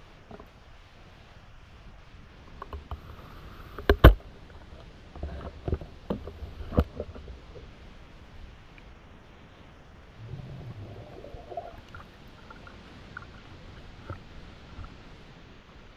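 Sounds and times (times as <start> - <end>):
underwater knocks and clunks: 3.8 - 7.7
low muffled rumbling: 10.0 - 14.3.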